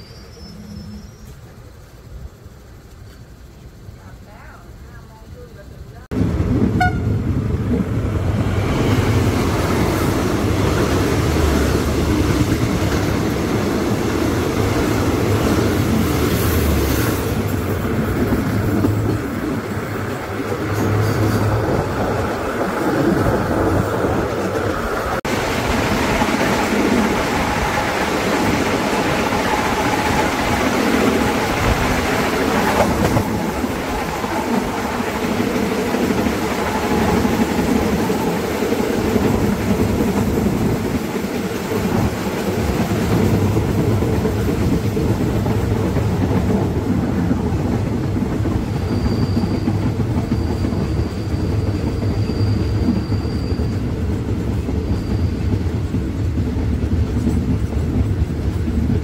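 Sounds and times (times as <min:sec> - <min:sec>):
train rumbling on rails: 0:00.0 - 0:59.0.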